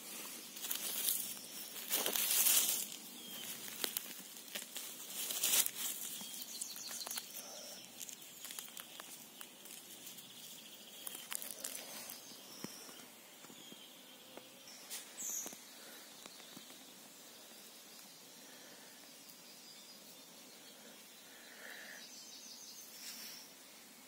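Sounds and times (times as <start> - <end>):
leaf litter rustling: 0.0 - 13.0.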